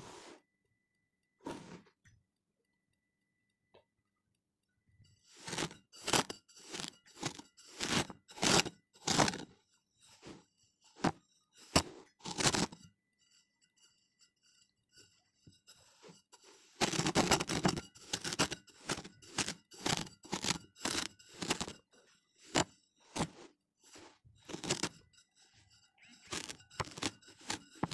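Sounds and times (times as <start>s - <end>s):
kinetic sand crunching: 22.4s - 24.9s.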